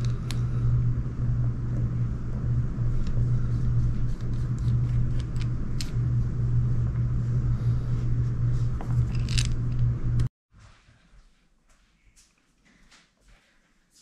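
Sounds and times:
steady low hum: 0.0s - 10.3s.

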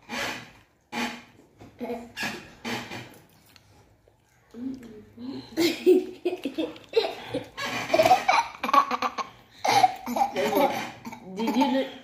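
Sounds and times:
children laughing: 5.6s - 12.0s.

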